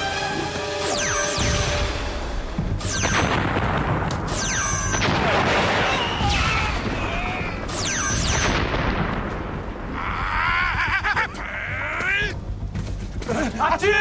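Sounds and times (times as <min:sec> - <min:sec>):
rumble of explosions: 0:01.4 - 0:14.0
laser blaster zaps: 0:02.8 - 0:03.5, 0:04.2 - 0:05.1, 0:07.7 - 0:08.7.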